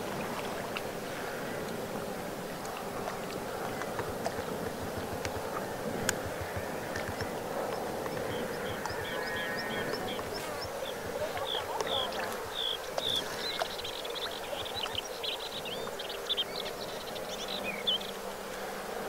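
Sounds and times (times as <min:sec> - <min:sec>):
insects buzzing: 0:00.0 - 0:19.0
small birds calling: 0:03.6 - 0:18.4
bird chattering: 0:06.2 - 0:15.5.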